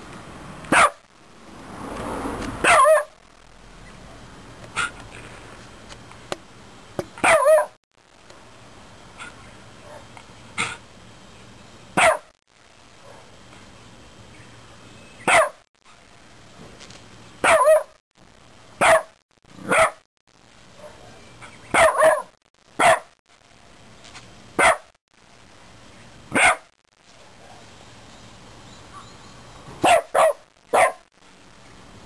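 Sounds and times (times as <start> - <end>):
dog barking: 0.7 - 1.0, 2.6 - 3.2, 4.8 - 5.0, 7.2 - 7.8, 9.2 - 10.8, 12.0 - 12.3, 13.0 - 13.3, 15.2 - 15.6, 17.4 - 18.0, 18.8 - 20.1, 20.8 - 21.1, 21.7 - 23.2, 24.6 - 25.0, 26.3 - 26.7, 29.8 - 31.1.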